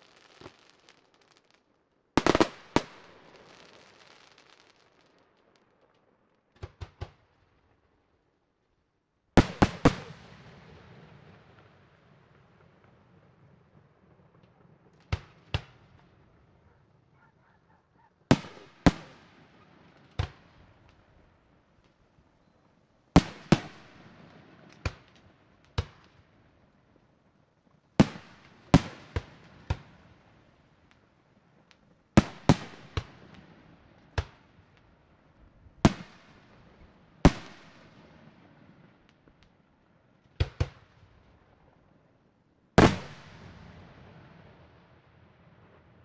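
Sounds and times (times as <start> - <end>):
fireworks bursting with bangs: 0.0 - 7.4, 9.4 - 11.7, 18.3 - 21.2, 23.2 - 26.3, 28.0 - 31.0, 31.6 - 34.8, 35.8 - 39.2, 42.8 - 44.6.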